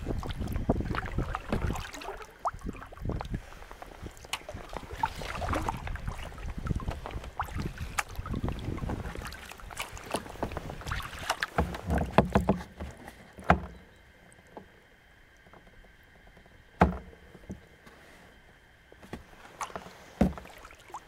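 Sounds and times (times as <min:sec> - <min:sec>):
paddle blades splashing: 0:00.0 - 0:14.8, 0:15.4 - 0:21.0
knocks on kayak: 0:11.5 - 0:13.8, 0:16.8 - 0:17.1, 0:20.2 - 0:20.5.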